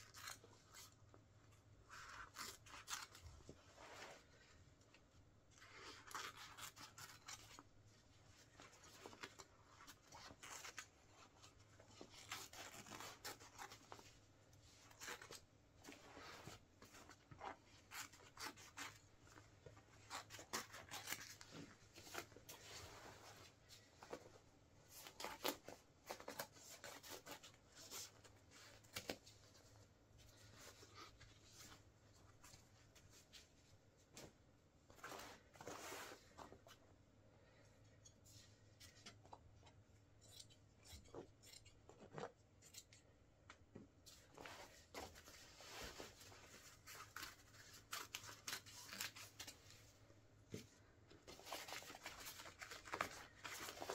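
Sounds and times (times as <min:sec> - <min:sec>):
fabric rustling and tearing: 0:01.8 - 0:04.4, 0:05.6 - 0:07.7, 0:08.4 - 0:14.2, 0:44.2 - 0:49.9, 0:51.2 - 0:53.9.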